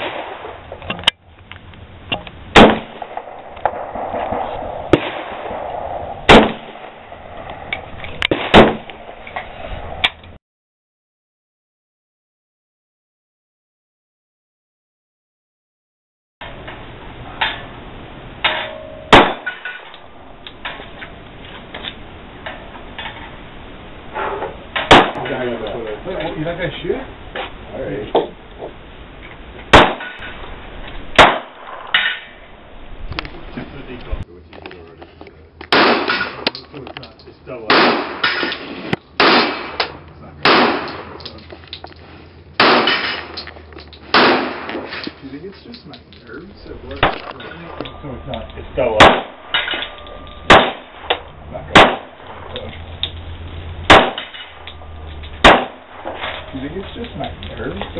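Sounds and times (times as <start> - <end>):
pistol shot: 2.6 - 4.2, 4.9 - 7.0, 8.3 - 9.1, 19.1 - 20.1, 24.8 - 25.2, 29.7 - 30.2, 31.1 - 32.2, 35.7 - 36.5, 37.7 - 41.3, 42.6 - 43.4, 44.0 - 45.0, 49.0 - 52.6, 53.9 - 56.5.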